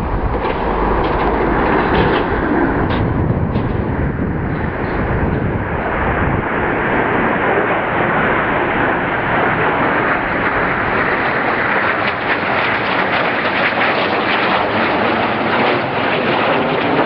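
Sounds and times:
jet roar overhead: 0.0 - 17.0.

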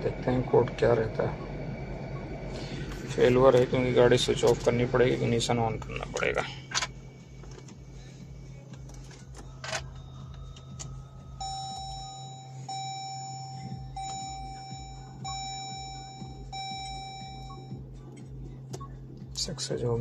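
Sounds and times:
low hum: 0.0 - 19.2
car warning chime: 10.0 - 17.8.

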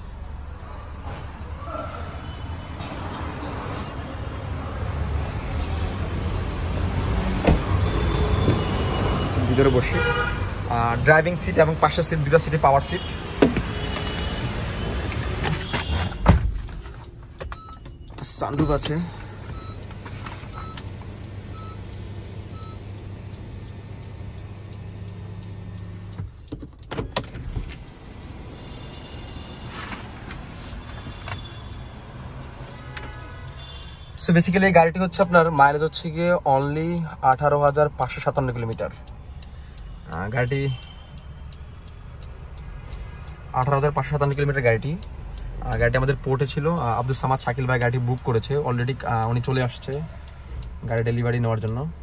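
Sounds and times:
sunroof motor humming: 19.3 - 26.1.

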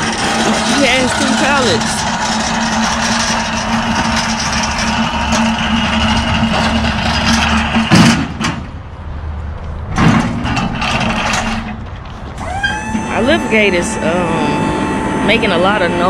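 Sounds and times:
pallet jack rattling over concrete: 0.0 - 8.6, 10.0 - 12.4
wheels clanking onto steel platform: 0.0 - 8.8, 9.9 - 13.4.

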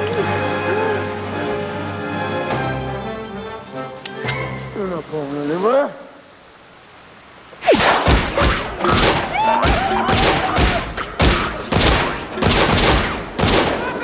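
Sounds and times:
rapid pistol gunfire: 10.1 - 13.8.

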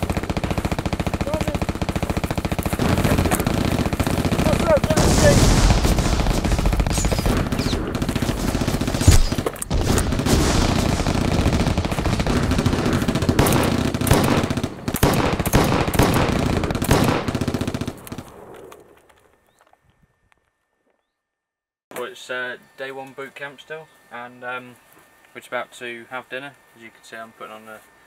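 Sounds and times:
machine-gun fire: 0.0 - 18.7
single gunshots: 4.5 - 17.3.

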